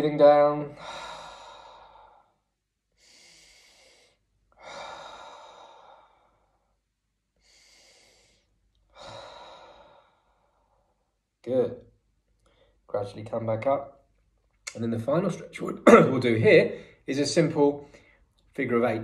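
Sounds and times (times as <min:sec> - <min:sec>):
man breathing slowly: 0:00.7 - 0:11.2, 0:12.4 - 0:12.8.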